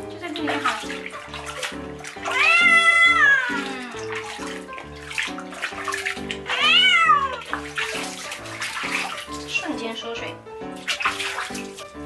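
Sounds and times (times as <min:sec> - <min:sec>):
cat meowing loudly: 0:02.2 - 0:03.7, 0:06.5 - 0:07.5.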